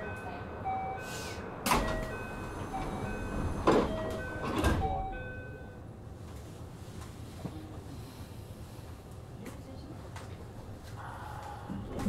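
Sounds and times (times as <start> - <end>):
sliding train doors: 1.0 - 5.7.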